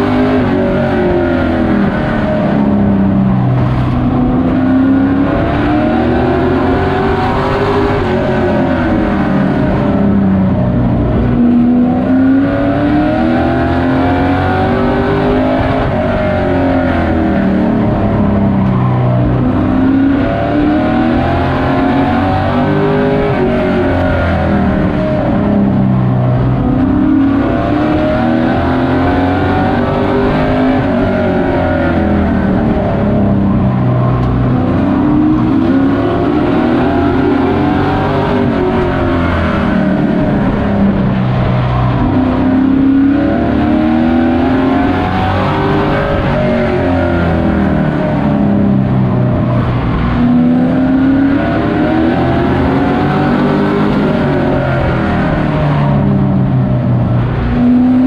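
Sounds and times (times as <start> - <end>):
race truck engine revving: 0.0 - 58.0.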